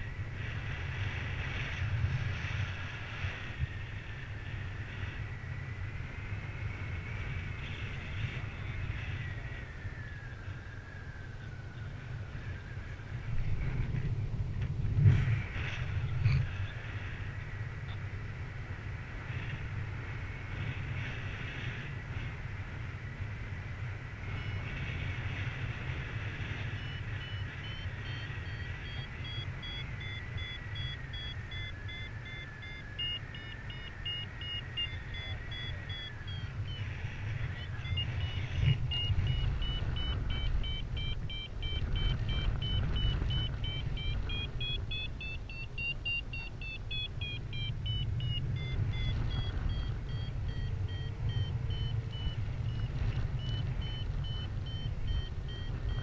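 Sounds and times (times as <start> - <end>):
wind rumble on microphone: 0.0 - 56.0
variometer beeping: 24.3 - 56.0.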